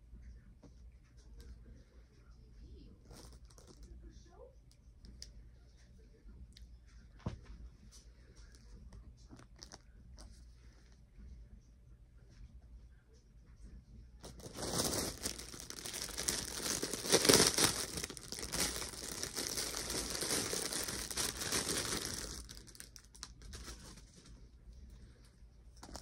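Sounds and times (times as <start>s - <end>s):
toy packaging crinkling: 14.2s - 24.3s.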